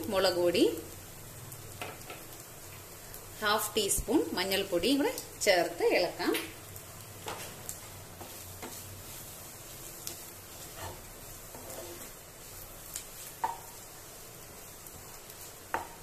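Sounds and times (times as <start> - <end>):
food sizzling in a pan: 0.0 - 16.0
spatula scraping a pan: 7.2 - 13.8.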